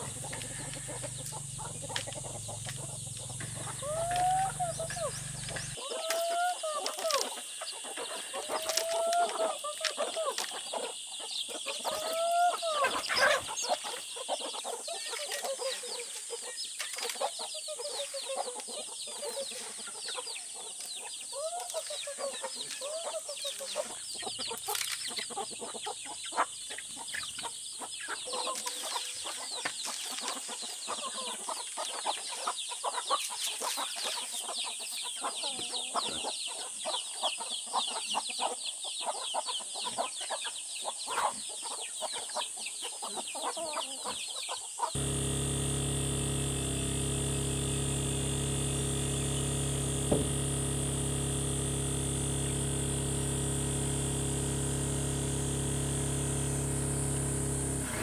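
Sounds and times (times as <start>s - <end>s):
chickens clucking: 0.0s - 45.0s.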